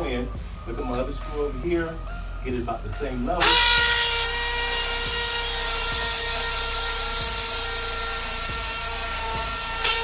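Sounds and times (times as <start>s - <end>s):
hammer drill boring into brick: 3.4s - 10.0s.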